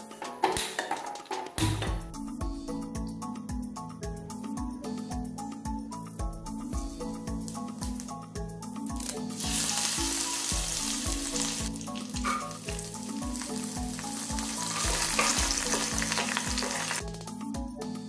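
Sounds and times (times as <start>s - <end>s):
background music with steady beat: 0.0s - 18.0s
hot oil sizzling: 9.0s - 17.2s.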